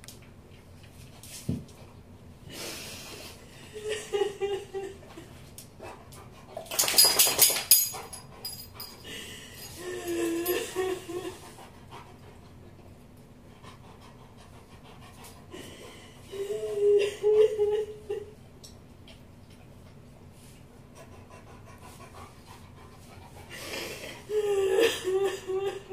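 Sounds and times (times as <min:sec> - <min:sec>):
boy sobbing and whimpering: 0:09.6 - 0:11.5, 0:16.3 - 0:18.3, 0:23.5 - 0:25.9
rapid panting breaths: 0:11.2 - 0:12.8, 0:13.4 - 0:16.4, 0:19.8 - 0:24.3.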